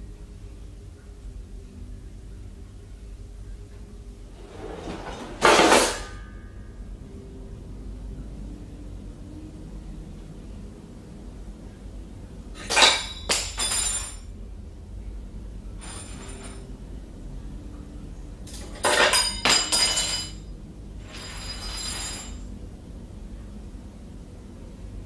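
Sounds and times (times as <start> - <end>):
kitchenware clattering: 4.4 - 6.4, 12.6 - 14.3, 18.5 - 20.4, 21.0 - 22.5.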